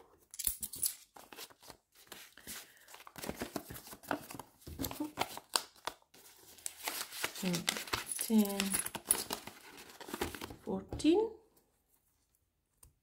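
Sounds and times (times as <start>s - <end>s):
paper rustling and crinkling: 1.1s - 10.7s.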